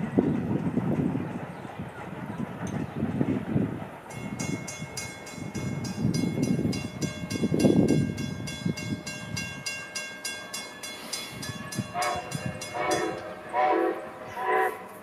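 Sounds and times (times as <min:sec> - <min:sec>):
railroad crossing bell ringing: 0:04.1 - 0:14.4.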